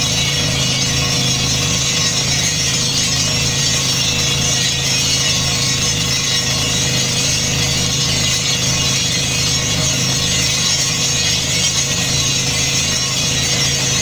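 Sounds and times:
drilling rig engine drone: 0.0 - 14.0
fast mechanical rattle: 0.0 - 14.0.

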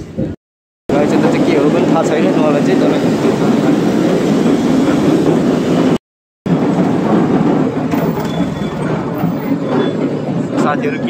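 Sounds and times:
busy road traffic: 0.0 - 11.0.

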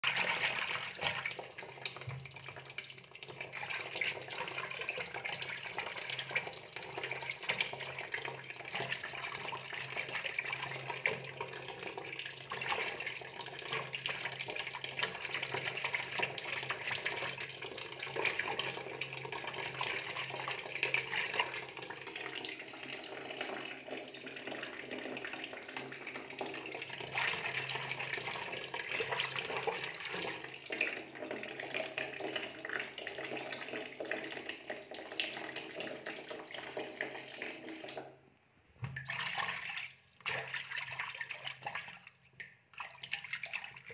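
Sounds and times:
water running and splashing: 0.0 - 2.6.

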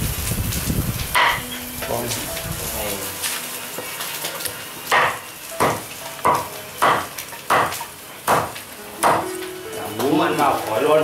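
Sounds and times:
cleaver chopping on board: 5.0 - 9.2.

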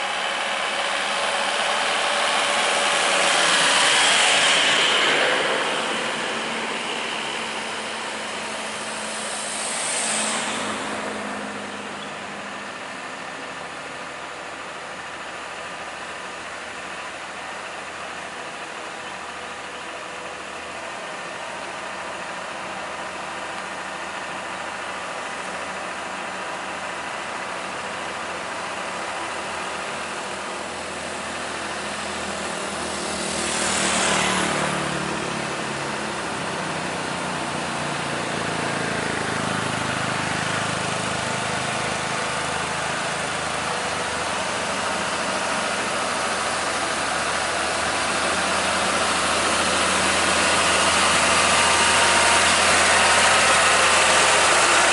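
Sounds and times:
diesel truck engine running: 0.0 - 54.9
motorcycle passing: 1.5 - 13.6, 31.7 - 54.9.

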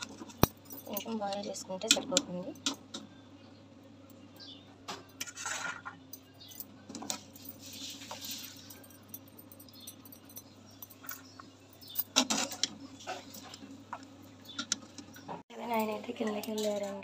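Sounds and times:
metal ladle scraping steel pot: 5.2 - 6.0.

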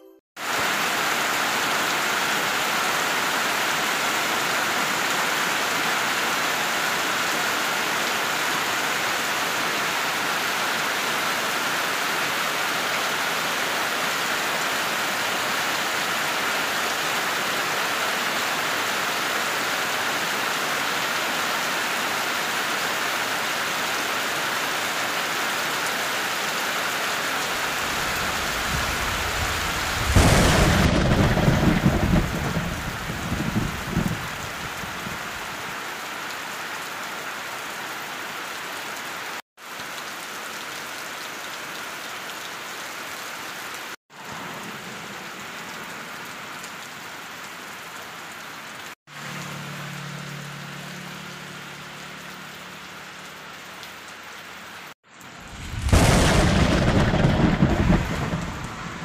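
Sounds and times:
heavy rain on leaves: 0.4 - 59.0
low rumble of thunder: 28.0 - 35.2, 55.4 - 59.0.

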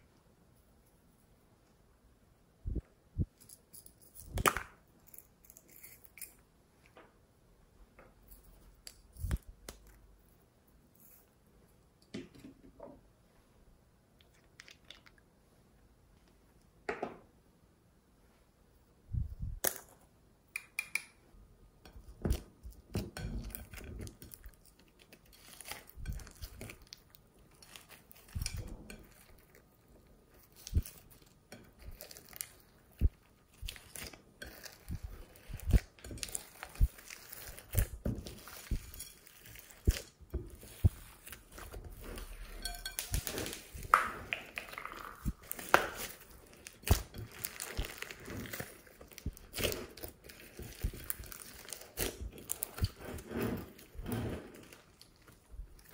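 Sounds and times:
slime squishing: 22.0 - 55.9
beads crackling and popping: 22.1 - 53.0.

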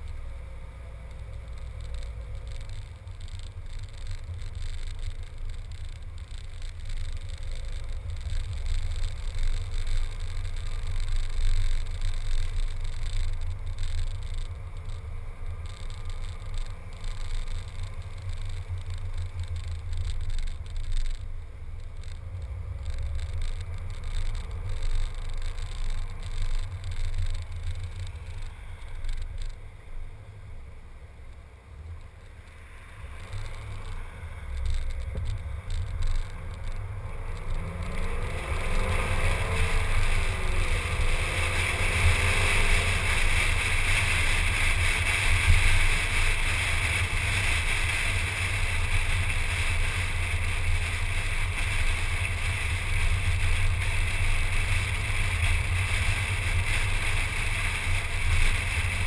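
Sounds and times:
wind and road noise: 0.0 - 59.0
car engine accelerating: 32.0 - 59.0.

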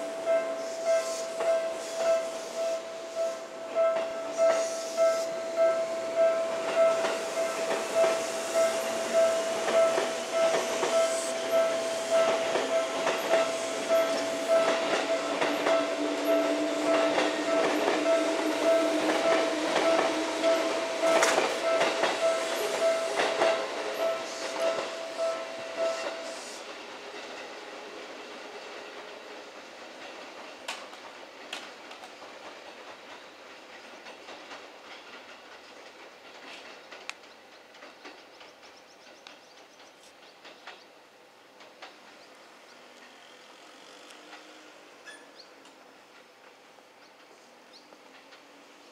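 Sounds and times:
faint outdoor noise: 0.0 - 48.9
train wheels clacking on rail joints: 0.0 - 48.9
electric train motor hum: 1.7 - 29.4.

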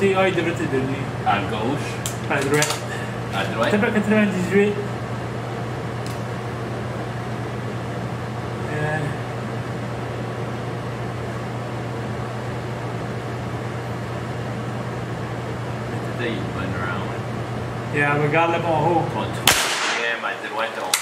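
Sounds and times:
low mechanical hum: 0.0 - 21.0.

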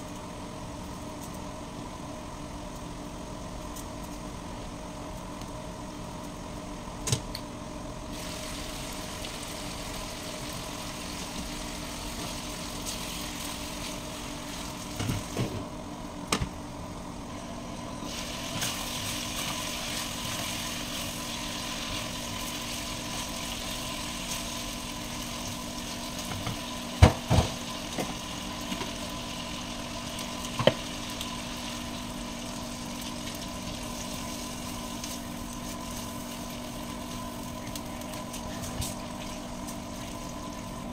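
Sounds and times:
range hood fan hum: 0.0 - 40.9
chicken sizzling in a wok: 8.1 - 15.6, 17.8 - 40.9.

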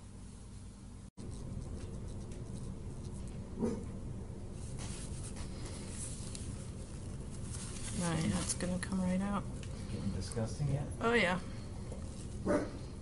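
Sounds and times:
latex gloves rustling: 4.5 - 9.9.

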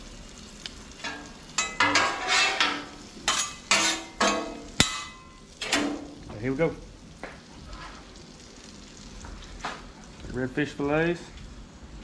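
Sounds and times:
grease sizzling: 0.0 - 12.0
metal spatula scraping griddle: 1.0 - 6.0.

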